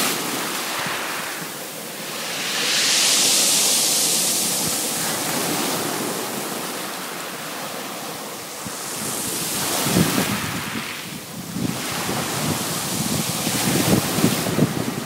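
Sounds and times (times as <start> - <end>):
waves washing on pebbles: 0.0 - 15.0
wind buffeting microphone: 8.6 - 15.0.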